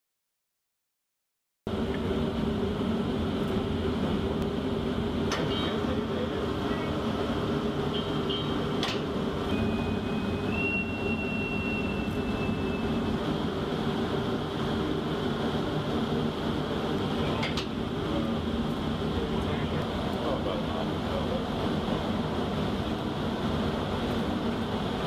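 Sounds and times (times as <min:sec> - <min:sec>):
ship machinery rumble and hum: 0:01.7 - 0:25.0
thin whistling tone: 0:09.4 - 0:13.1.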